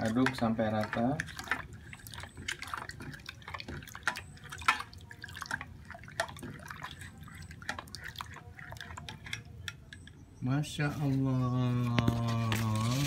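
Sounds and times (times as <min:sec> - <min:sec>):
liquid sloshing and splashing: 0:00.0 - 0:10.2.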